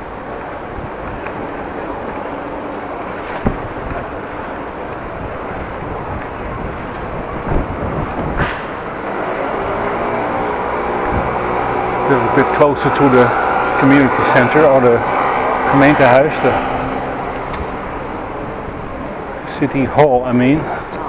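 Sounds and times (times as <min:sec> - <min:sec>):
street traffic noise: 0:00.0 - 0:21.0
short high squeak: 0:03.3 - 0:04.7, 0:05.3 - 0:05.9, 0:07.4 - 0:12.3, 0:15.0 - 0:15.5
sharp knocks: 0:03.4 - 0:04.0.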